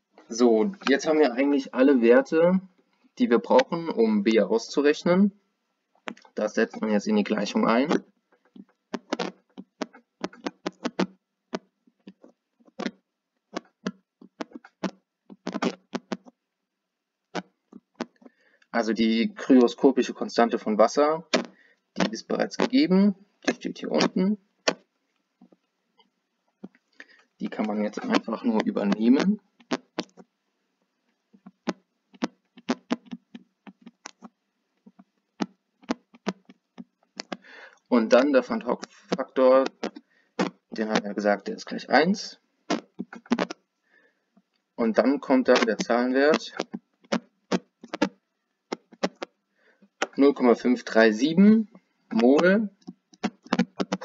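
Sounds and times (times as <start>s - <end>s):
stylus tapping on tablet screen: 31.4s - 37.4s.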